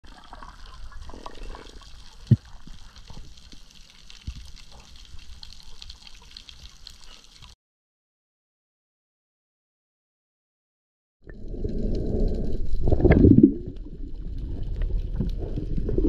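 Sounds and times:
water sloshing and gurgling: 0.0s - 7.5s, 11.2s - 16.0s.

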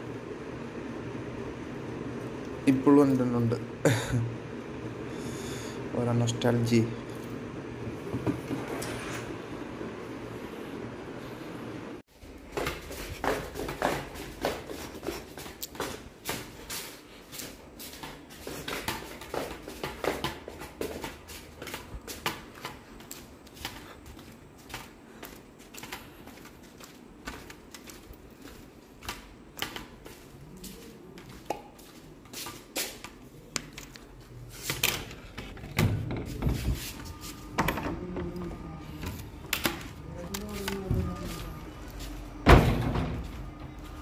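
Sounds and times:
sandals slapping on hard floor: 12.3s - 30.4s, 31.2s - 33.8s.

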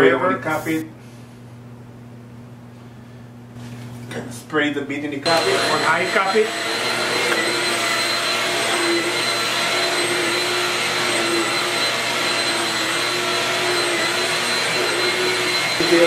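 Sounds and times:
vacuum cleaner running on carpet: 5.2s - 16.0s.

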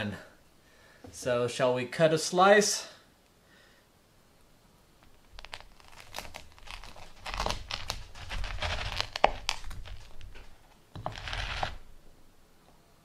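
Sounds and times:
knife sawing crunchy crust: 5.8s - 10.2s, 11.0s - 11.8s.

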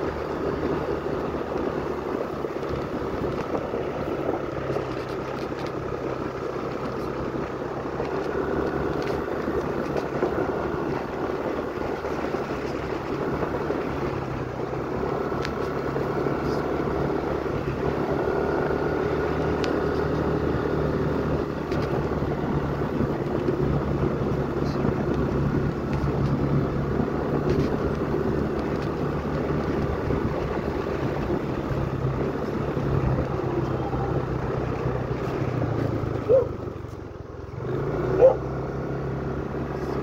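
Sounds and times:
road noise: 0.0s - 40.0s
vehicle engine droning: 0.0s - 40.0s.

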